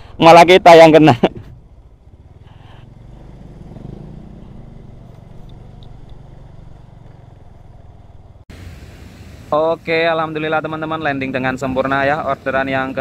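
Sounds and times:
motorcycle engine running: 1.4 - 8.4.

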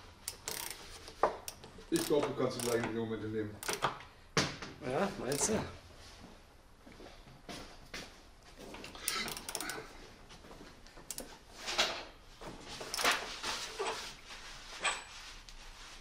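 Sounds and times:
socket wrench ratcheting: 0.2 - 3.0, 3.6 - 4.0, 5.2 - 5.6, 9.0 - 9.8, 12.9 - 13.2.

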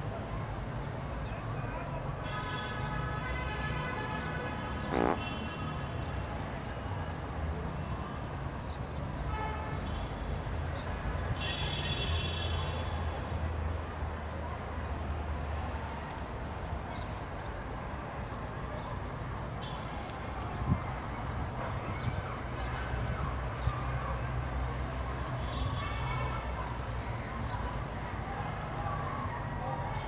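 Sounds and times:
distant traffic rumble: 2.8 - 9.2.

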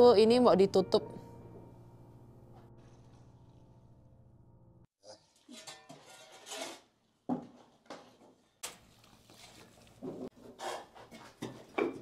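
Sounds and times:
shovel scraping on concrete: 5.5 - 6.9.

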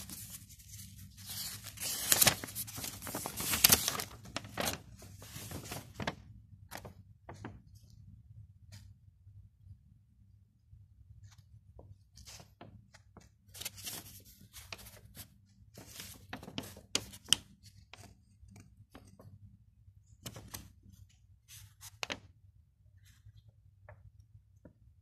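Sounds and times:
paper leaflet rustling and crinkling: 0.0 - 8.0, 11.2 - 19.5, 20.2 - 22.4.

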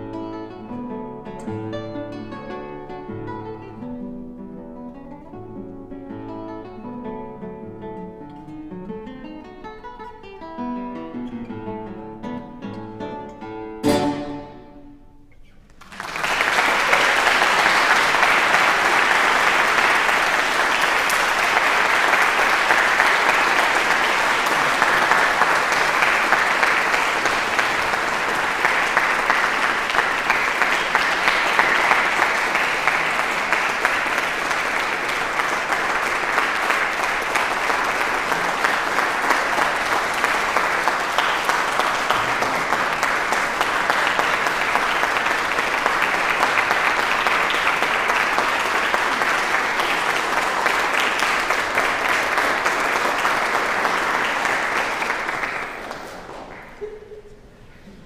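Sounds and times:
audience applauding: 15.7 - 57.5.

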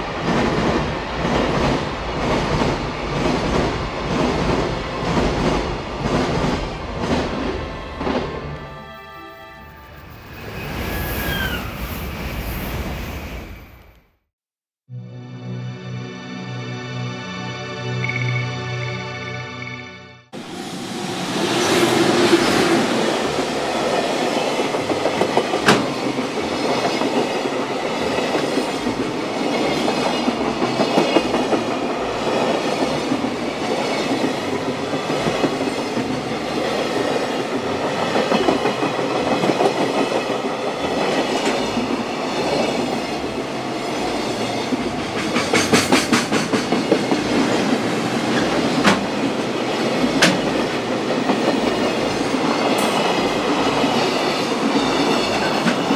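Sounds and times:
train wheels rumbling on rails: 0.0 - 8.6, 20.4 - 55.9
clickety-clack over rail joints: 0.2 - 8.4, 23.8 - 43.1, 43.8 - 55.9.

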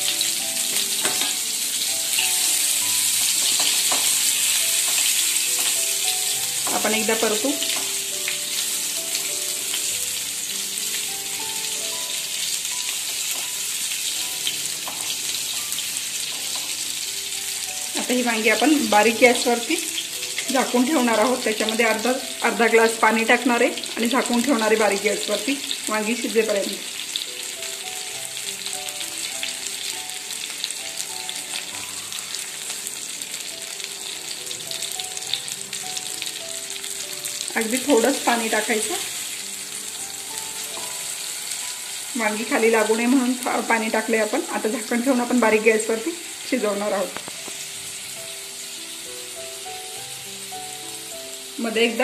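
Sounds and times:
soft background melody: 0.0 - 52.0
vegetables sizzling in hot oil: 0.0 - 52.0
spatula tapping pan: 0.7 - 1.4, 3.2 - 4.2, 13.1 - 13.6.

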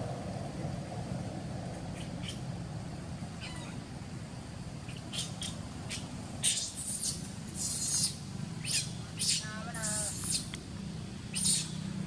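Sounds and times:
low rumble: 0.0 - 4.8
baby monkey squealing: 3.4 - 3.8, 4.9 - 10.5, 11.3 - 11.8.

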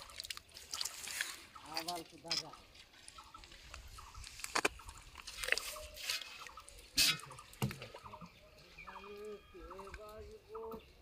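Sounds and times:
water splashes and drips: 0.0 - 8.2.

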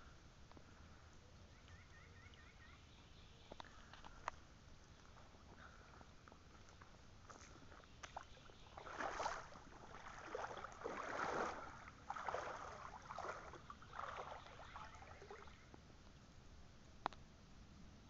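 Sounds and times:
water sloshing: 6.7 - 15.8.

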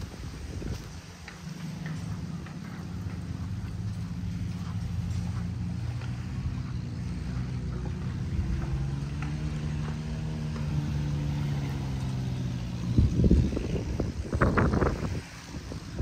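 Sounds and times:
engine running: 0.0 - 16.0.

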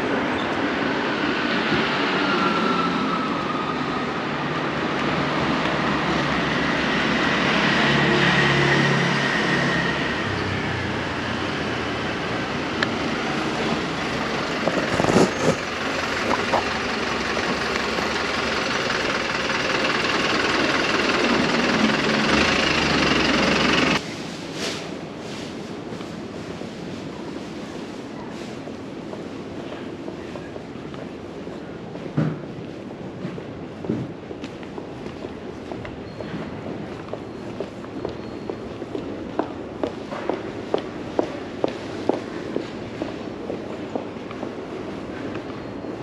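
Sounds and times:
electric train rumbling: 0.0 - 46.0.

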